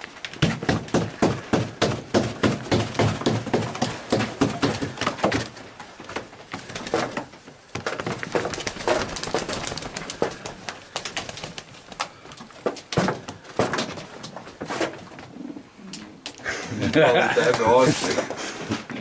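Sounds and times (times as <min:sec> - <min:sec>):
knocks and scuffs on wood: 0:00.3 - 0:11.6
pigeons cooing: 0:15.1 - 0:16.9.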